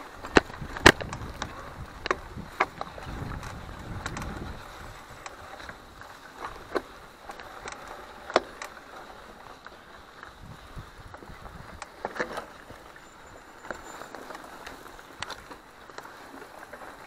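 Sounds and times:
wind rumble on microphone: 0:00.0 - 0:06.8, 0:10.2 - 0:14.0
bike clicks and knocks: 0:00.0 - 0:17.0.

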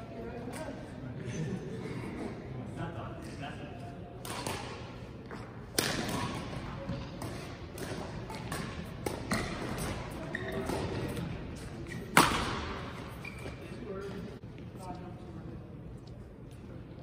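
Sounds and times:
racket hitting shuttlecock: 0:04.2 - 0:13.2.

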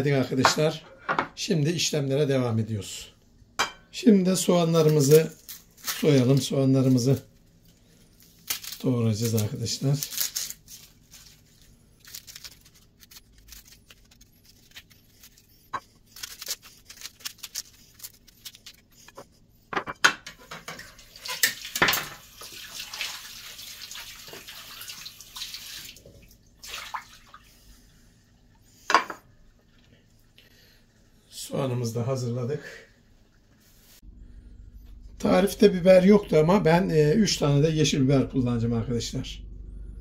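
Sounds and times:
onion skins crackling: 0:04.4 - 0:19.4
knife scraping: 0:12.2 - 0:20.6.

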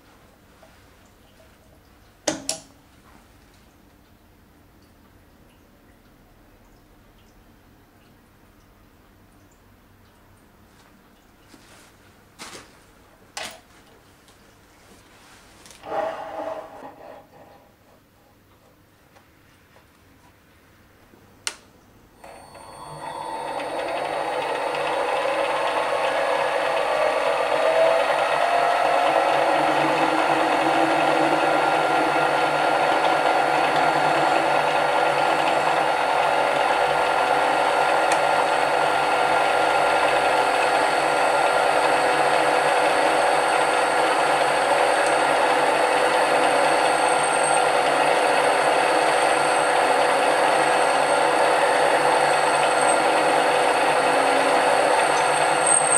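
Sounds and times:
switch click: 0:02.3 - 0:02.7, 0:21.4 - 0:21.7
drill cutting into metal: 0:22.2 - 0:55.9
lathe motor whining: 0:22.2 - 0:55.9.

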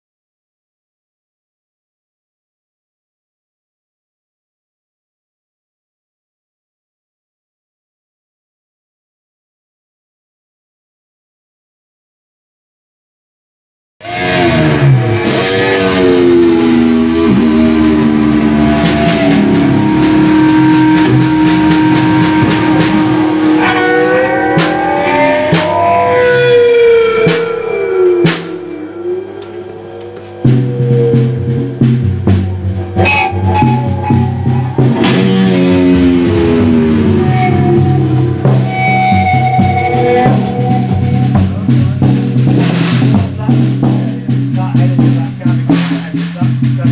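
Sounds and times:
drum kit: 0:14.0 - 0:46.9
electric guitar bending long notes: 0:14.0 - 0:46.9
sharp drum hit: 0:14.1 - 0:28.8, 0:30.1 - 0:46.9
cymbals in steady rhythm: 0:14.1 - 0:46.9.

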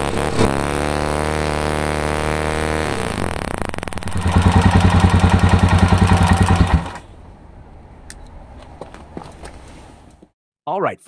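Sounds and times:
motorcycle engine turning over: 0:00.0 - 0:07.1.

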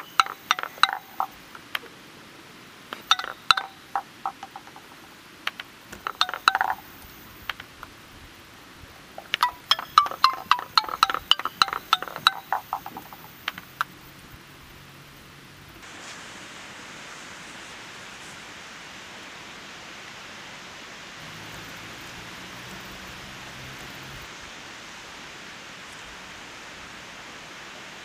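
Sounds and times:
wooden xylophone runs: 0:00.0 - 0:01.4, 0:02.9 - 0:05.1, 0:05.9 - 0:07.6, 0:09.0 - 0:14.1.

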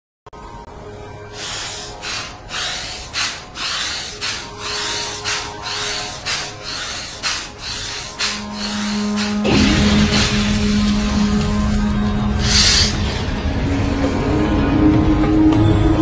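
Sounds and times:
forceful breaths through nose: 0:01.3 - 0:09.4, 0:12.4 - 0:13.1.

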